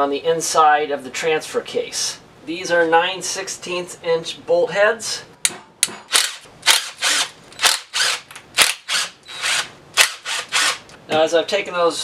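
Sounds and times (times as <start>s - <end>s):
cordless power driver bursts: 6.1s - 10.9s.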